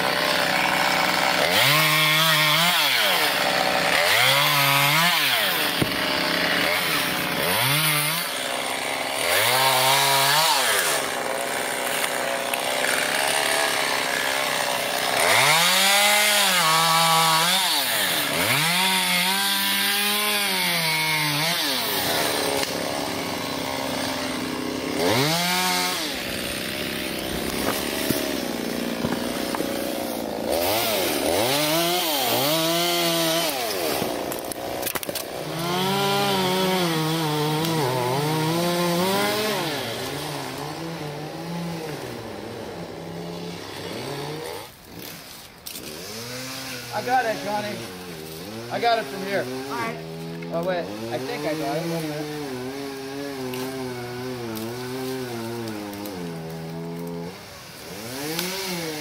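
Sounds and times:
chainsaw revving: 0.0 - 59.0.

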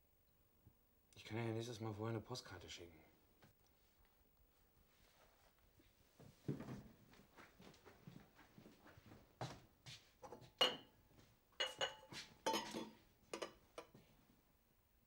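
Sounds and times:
glassware clinking and knocking: 10.6 - 10.9, 11.6 - 13.9.

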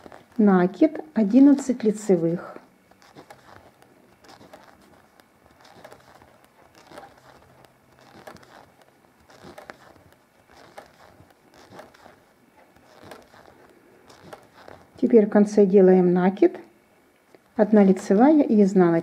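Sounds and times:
knitting needles clicking: 0.0 - 15.2.

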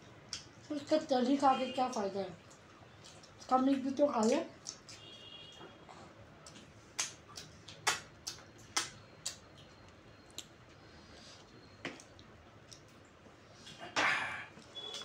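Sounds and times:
mouth chewing with smacks: 1.9 - 13.0.

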